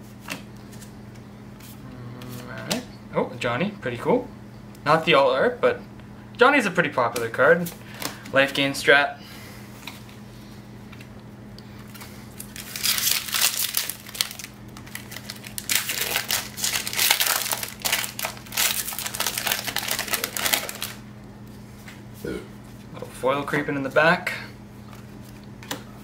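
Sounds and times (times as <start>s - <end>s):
foil wrapper crinkling: 11.9s - 21.0s.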